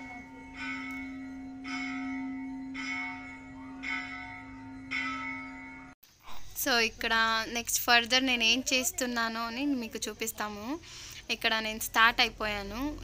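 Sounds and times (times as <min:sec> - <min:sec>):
large bell ringing: 0:00.0 - 0:06.0.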